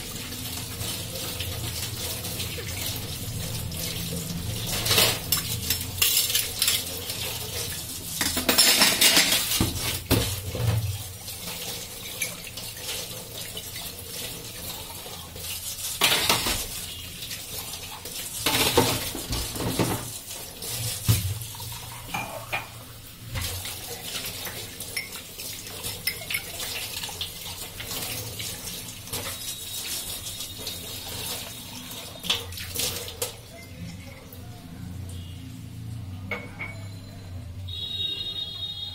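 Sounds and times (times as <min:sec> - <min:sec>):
tap water running into sink: 0:00.0 - 0:34.4
utensils clinking: 0:04.7 - 0:07.2, 0:08.1 - 0:10.1, 0:16.0 - 0:16.7, 0:25.9 - 0:26.6.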